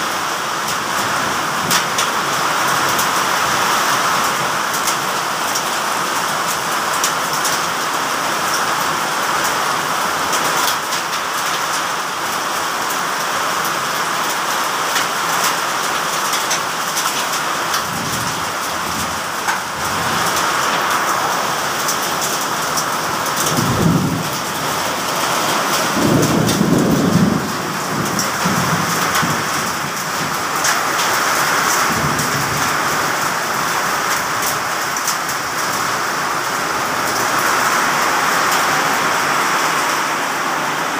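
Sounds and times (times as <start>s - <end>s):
heavy rain pouring: 0.0s - 40.9s
raindrops ticking on surfaces: 0.0s - 40.9s
thunder rumbles: 23.4s - 30.7s, 31.8s - 33.1s.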